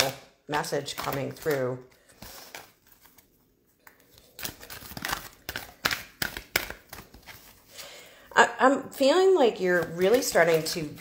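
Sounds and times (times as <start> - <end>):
cards being shuffled: 0.9 - 7.8.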